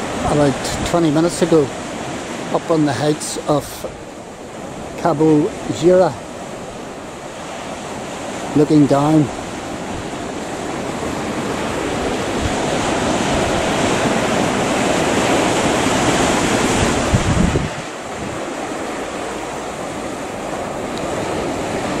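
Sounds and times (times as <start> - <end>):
wind buffeting microphone: 9.1 - 22.0.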